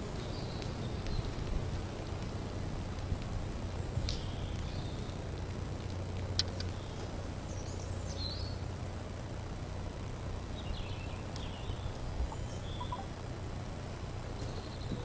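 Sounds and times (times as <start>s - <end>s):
bird chirps: 10.6s - 13.1s.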